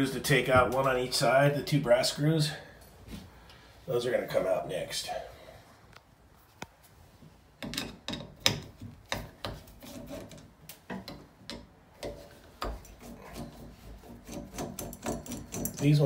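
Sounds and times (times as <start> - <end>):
screwdriver scraping and clicking: 7.7 - 16.0.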